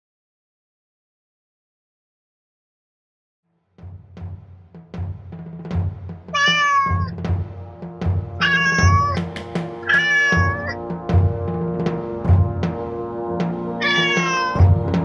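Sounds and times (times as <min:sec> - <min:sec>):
music with steady drum beat: 0:03.7 - 0:15.0
cat meowing: 0:06.3 - 0:07.1, 0:08.4 - 0:09.2, 0:09.8 - 0:10.8, 0:13.8 - 0:14.7.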